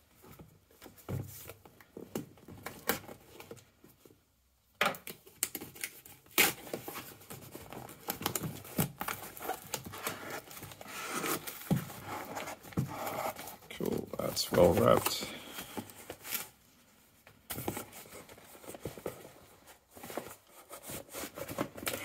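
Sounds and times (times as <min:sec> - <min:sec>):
cardboard rustling and knocking: 0:00.2 - 0:04.0, 0:06.8 - 0:16.4, 0:17.4 - 0:22.0
tape tearing: 0:05.1 - 0:07.0.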